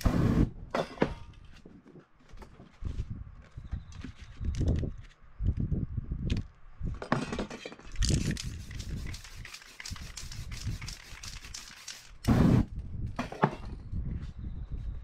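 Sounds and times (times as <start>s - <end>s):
aerosol spray can hissing: 8.4s - 12.6s.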